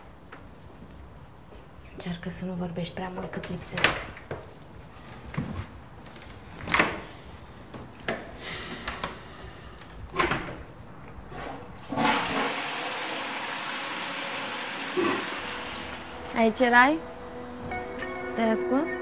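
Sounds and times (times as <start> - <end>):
toilet flushing: 11.3 - 17.3.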